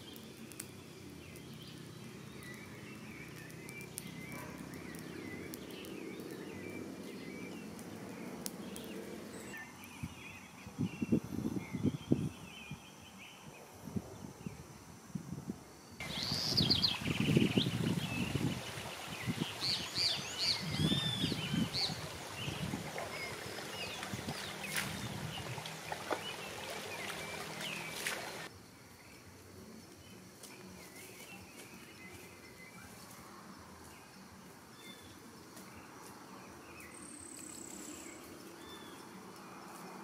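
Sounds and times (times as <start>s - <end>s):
songbirds calling: 0.0s - 14.7s, 15.8s - 40.0s
footsteps through grass: 22.6s - 28.5s, 30.4s - 33.2s.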